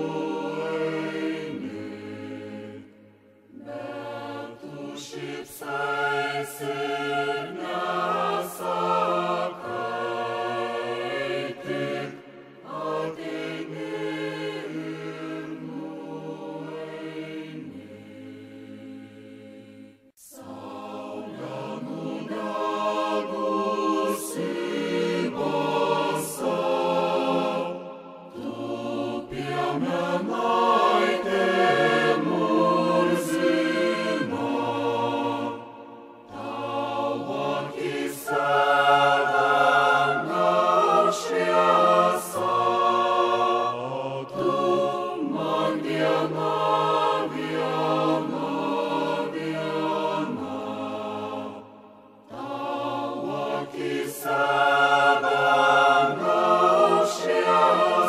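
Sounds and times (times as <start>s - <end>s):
choir singing in harmony: 0.0s - 58.0s.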